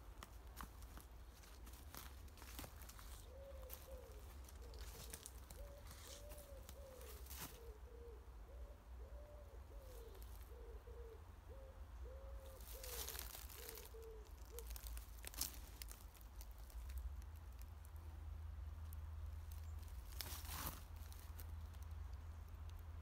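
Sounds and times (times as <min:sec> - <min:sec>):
footsteps on leaf litter: 0:00.0 - 0:07.7, 0:12.6 - 0:17.0, 0:19.5 - 0:21.5
pigeon cooing: 0:02.9 - 0:14.8.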